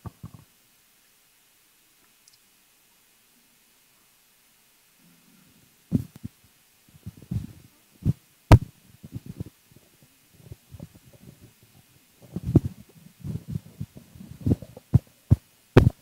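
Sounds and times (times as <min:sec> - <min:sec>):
low thumps and knocks: 0:12.2 - 0:16.0.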